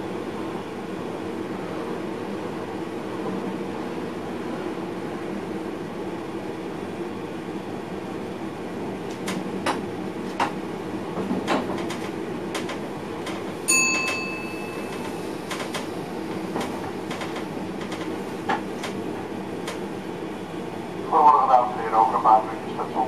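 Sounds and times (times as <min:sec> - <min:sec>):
train cab running noise: 0:07.4 - 0:23.0
bell-like ding: 0:13.7 - 0:15.2.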